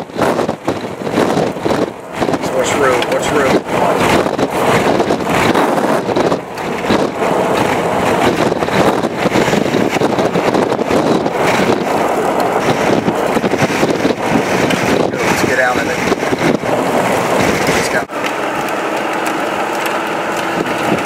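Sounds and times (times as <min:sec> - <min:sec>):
wind and road noise: 0:00.0 - 0:21.0
wind buffeting microphone: 0:00.0 - 0:21.0.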